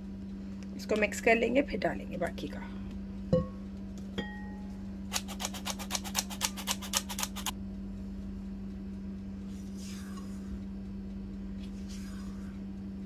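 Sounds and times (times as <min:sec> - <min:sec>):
low steady hum: 0:00.0 - 0:13.0
metal flour sifter rasping: 0:09.5 - 0:10.6, 0:11.6 - 0:12.6.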